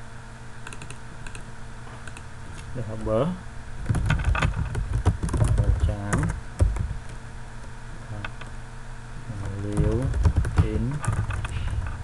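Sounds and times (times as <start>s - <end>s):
typing on computer keyboard: 0.6s - 1.4s, 3.9s - 6.9s, 9.4s - 11.5s.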